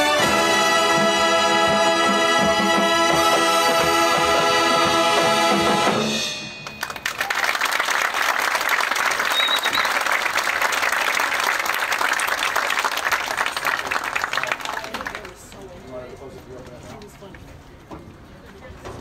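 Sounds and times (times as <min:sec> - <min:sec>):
horn line holding a chord: 0:00.0 - 0:06.6
crowd applause: 0:06.6 - 0:15.7.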